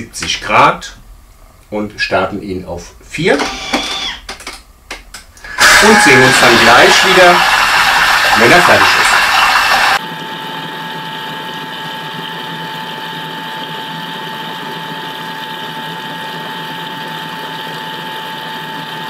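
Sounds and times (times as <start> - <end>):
kitchen appliance motor whirring: 3.3 - 4.4, 5.4 - 10.0.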